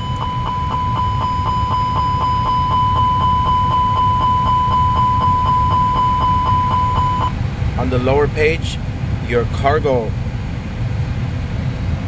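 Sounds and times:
repetitive warning chime: 0.0 - 7.4.

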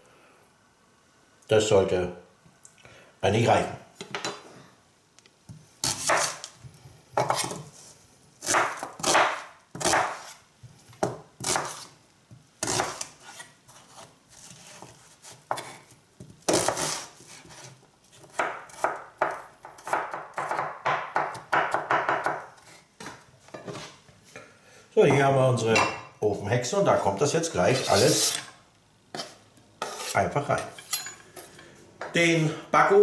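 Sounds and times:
knife chopping onion on board: 5.8 - 6.5, 7.2 - 7.7, 8.4 - 10.4, 11.0 - 11.9, 12.6 - 23.2.

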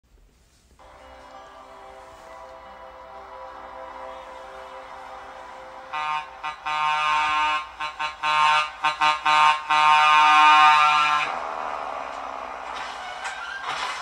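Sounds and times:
truck air horn blasts: 0.8 - 11.4.

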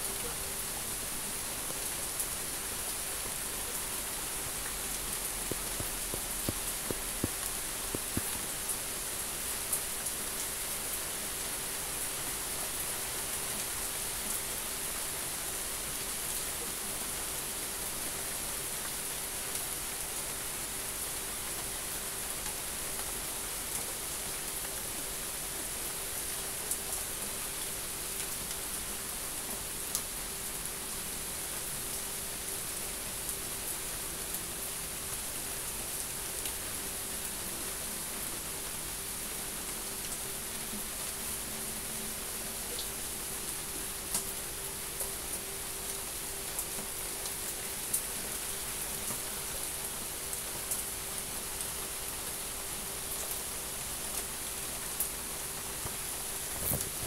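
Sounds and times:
steady rain falling: 0.0 - 57.0
raindrops ticking: 5.4 - 8.4.

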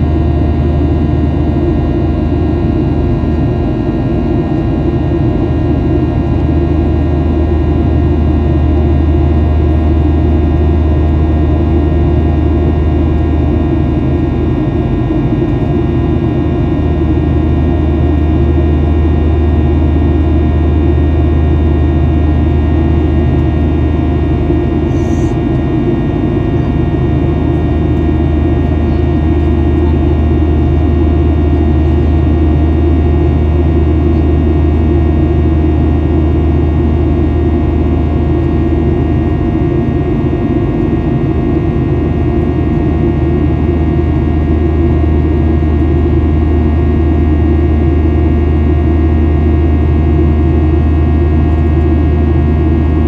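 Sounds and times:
jet engine cabin rumble: 0.0 - 53.0.

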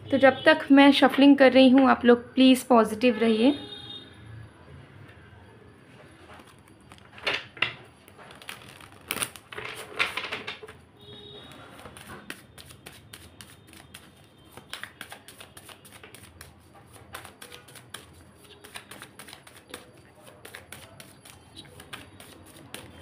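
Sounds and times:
cards being shuffled: 8.2 - 10.6, 11.8 - 23.0.

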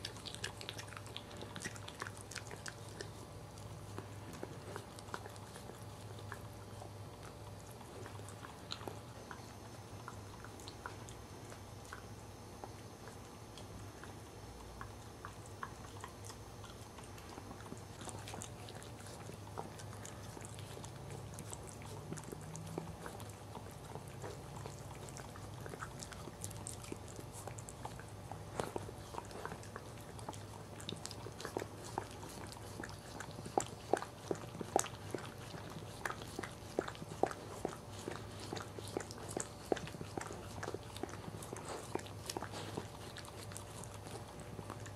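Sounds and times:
dog licking and chewing: 0.0 - 44.9
faint low hum: 0.0 - 44.9.

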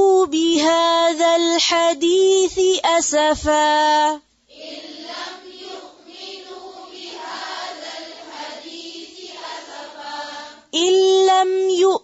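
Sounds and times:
group chanting in unison: 4.5 - 10.7.

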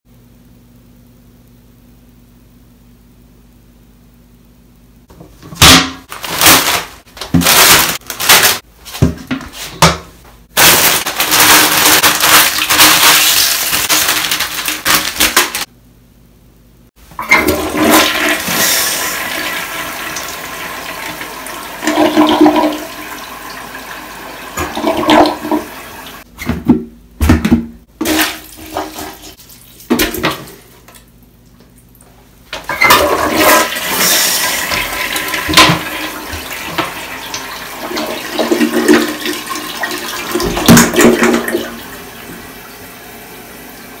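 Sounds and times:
toilet flushing: 10.7 - 15.7, 17.1 - 26.3, 28.0 - 30.7, 32.6 - 44.0
plunger sloshing: 24.6 - 25.7, 28.0 - 31.0, 32.7 - 41.8.

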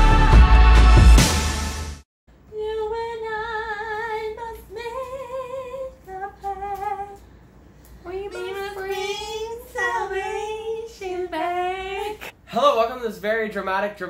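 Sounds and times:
intro music: 0.0 - 2.0
woman singing unaccompanied: 2.5 - 7.2, 8.0 - 12.3.

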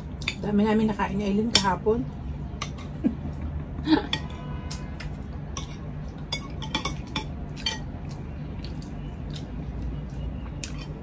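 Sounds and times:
cutlery clinking on plates: 5.5 - 7.9.

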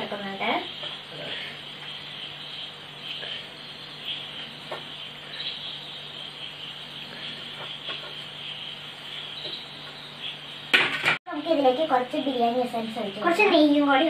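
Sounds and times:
insects trilling: 0.0 - 10.8.

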